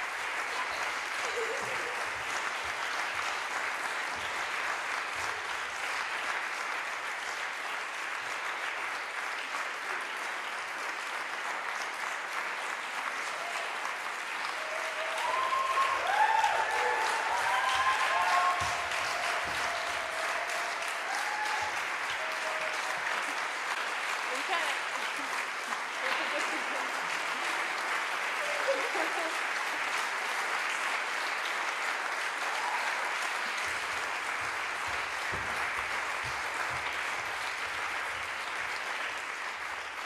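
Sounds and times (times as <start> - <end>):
audience applauding: 0.0 - 40.0
whoops and cheers: 14.5 - 23.1, 32.4 - 33.3.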